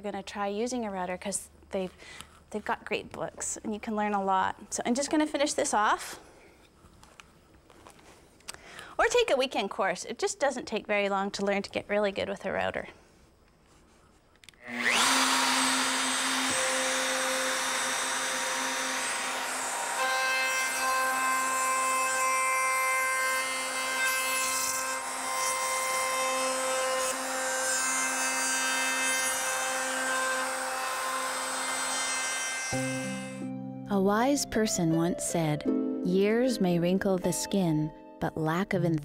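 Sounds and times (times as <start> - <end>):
router motor whine: 14.6 - 33.4
router bit cutting wood: 14.6 - 33.5.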